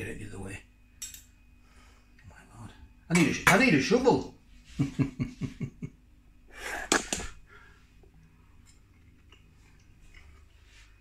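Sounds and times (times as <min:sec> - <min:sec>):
faint chewing: 0:08.0 - 0:11.0.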